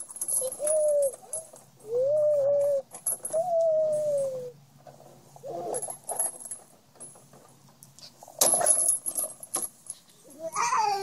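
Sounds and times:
swing chains rattling: 0:00.0 - 0:01.8, 0:02.9 - 0:03.6, 0:05.5 - 0:07.6, 0:08.3 - 0:11.0.

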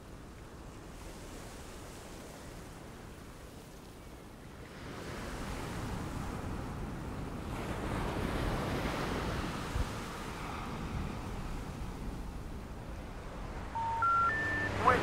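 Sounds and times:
ocean surf washing onto shore: 0:05.0 - 0:15.0.

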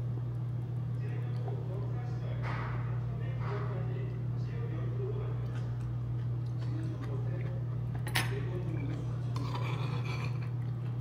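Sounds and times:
steady low hum: 0:00.0 - 0:11.0
cutlery clinking on bowl: 0:08.0 - 0:10.6.

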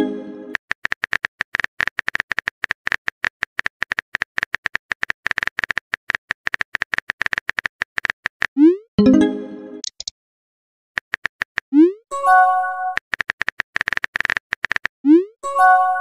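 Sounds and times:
upward-sweeping message send sound: 0:09.0 - 0:09.8
phone keyboard typing clicks: 0:09.8 - 0:10.1, 0:13.0 - 0:14.9.

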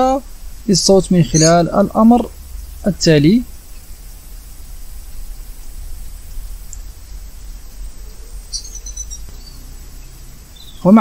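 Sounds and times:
person speaking: 0:00.0 - 0:03.5
low rumble with faint hiss: 0:00.0 - 0:11.0.

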